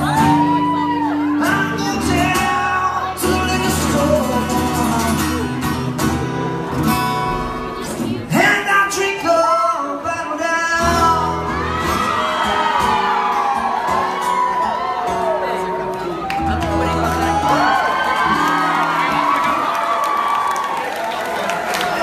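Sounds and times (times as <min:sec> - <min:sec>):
guitar playing: 0:00.0 - 0:20.2
man singing: 0:01.2 - 0:05.9, 0:08.3 - 0:11.6.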